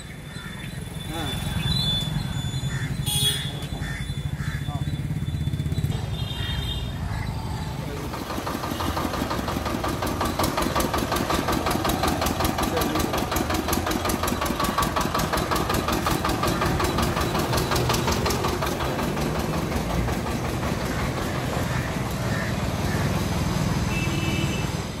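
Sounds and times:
small engine knocking: 3.8 - 23.9.

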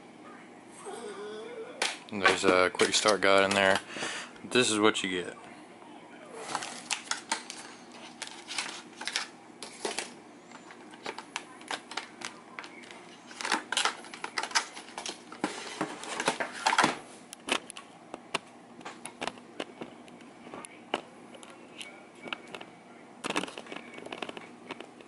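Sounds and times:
cardboard and plastic packaging handled: 6.4 - 17.7.

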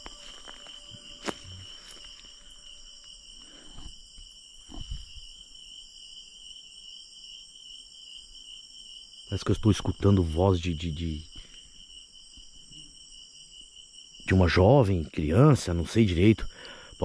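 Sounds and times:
soft rustles in leaf litter: 0.0 - 3.2
night insects trilling: 0.0 - 17.0.

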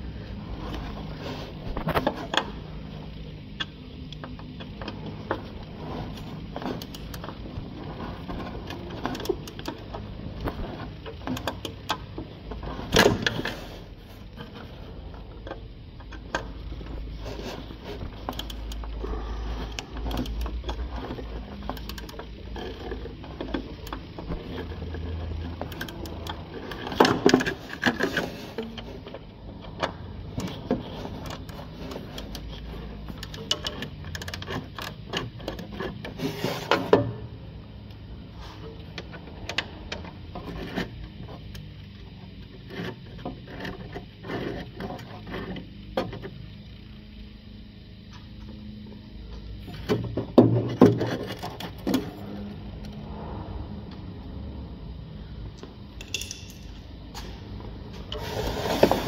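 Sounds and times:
wrench metallic clicks and scrapes: 3.6 - 37.0, 55.7 - 57.4
metal clatter: 56.0 - 56.9.

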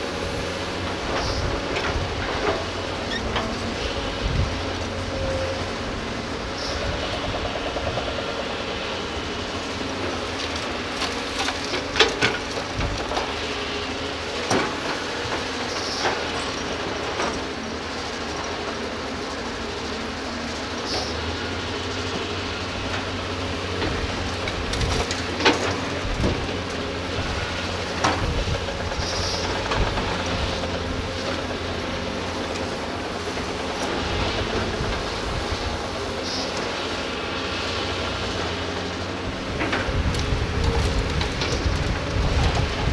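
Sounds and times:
excavator diesel engines running: 0.0 - 42.9
short high squeaks: 3.0 - 3.4.

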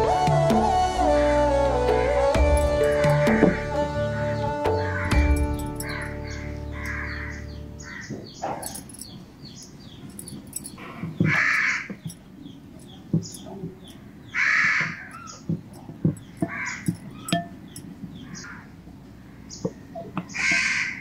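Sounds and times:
small birds chirping: 1.9 - 21.0
crows cawing: 4.8 - 8.8, 10.8 - 12.1, 13.9 - 15.4, 16.4 - 17.4, 18.2 - 19.5, 20.2 - 21.0.

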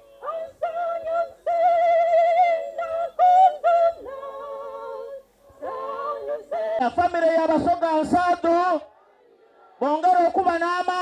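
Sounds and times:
high voice singing with vibrato: 0.0 - 6.8.

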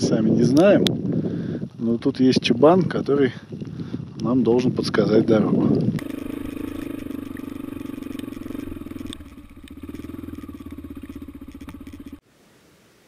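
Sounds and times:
dirt bike engine running: 5.8 - 12.2.

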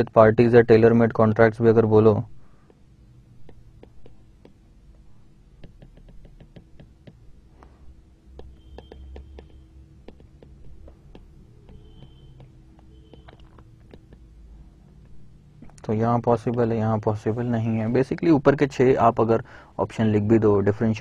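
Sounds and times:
faint steady hum: 0.0 - 21.0
marker pen writing on a board: 2.5 - 16.8
marker squeaks: 3.4 - 7.2, 8.3 - 14.3.

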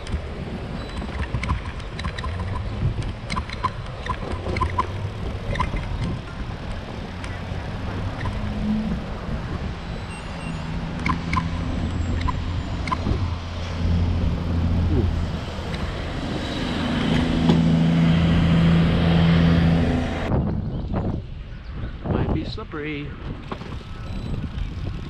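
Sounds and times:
low hum: 0.0 - 20.5
bicycle rolling over wooden planks: 23.3 - 25.0.

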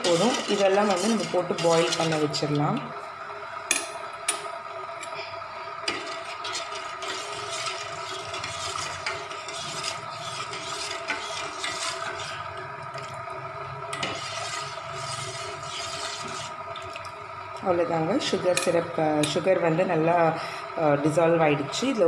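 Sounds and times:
spoon scraping a metal pot: 0.0 - 2.6, 5.8 - 12.6, 13.9 - 16.6
steady whine: 0.0 - 22.0.

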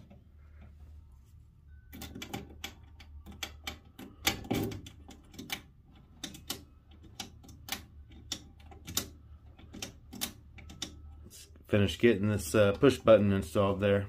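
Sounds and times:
ignition switch clicks and clacks: 1.9 - 11.1.

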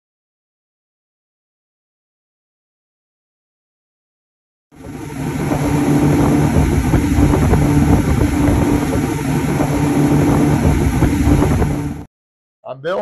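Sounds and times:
outboard motor drone: 4.7 - 12.1
rush of wake and wind: 4.8 - 12.1.

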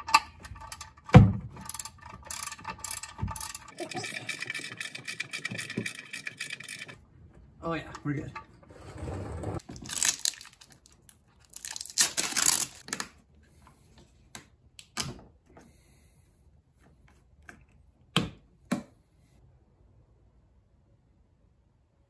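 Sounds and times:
plastic jug rustling and tearing: 9.6 - 13.0.

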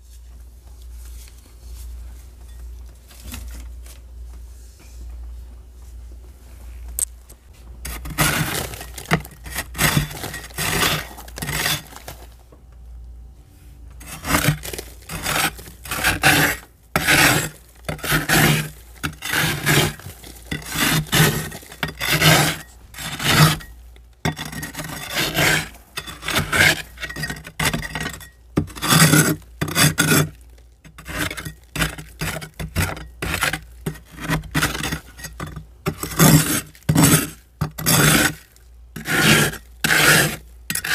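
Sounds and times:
metal scraper scraping frost: 7.9 - 12.2, 14.0 - 23.7, 24.3 - 40.9.

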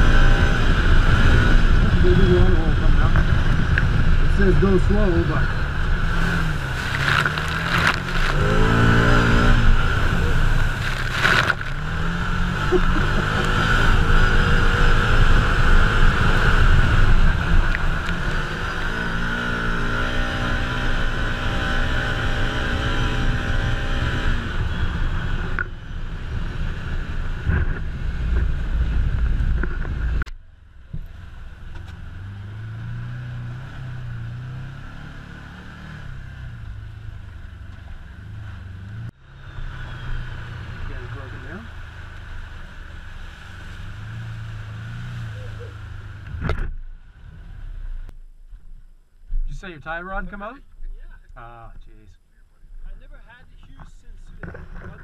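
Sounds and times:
vehicle engine running: 0.0 - 20.8.

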